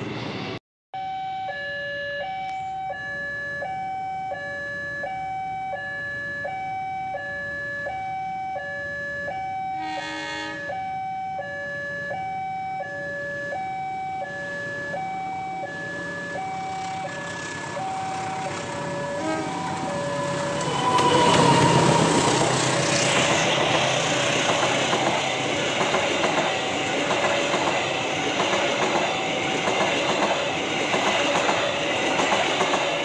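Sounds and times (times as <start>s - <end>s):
level crossing two-tone alarm: 1.0s - 22.0s
train horn blast: 9.8s - 10.8s, 19.1s - 20.0s.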